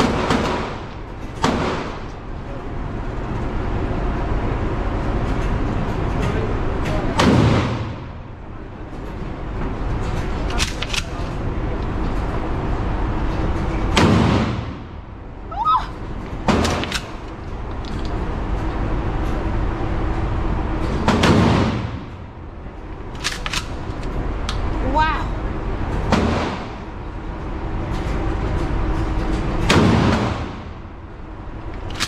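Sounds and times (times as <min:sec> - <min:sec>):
gunshots echoing indoors: 0:00.0 - 0:02.2, 0:07.1 - 0:08.3, 0:13.9 - 0:15.0, 0:16.4 - 0:17.2, 0:21.0 - 0:22.2, 0:26.0 - 0:26.9, 0:29.6 - 0:30.9
low background rumble: 0:00.0 - 0:32.0.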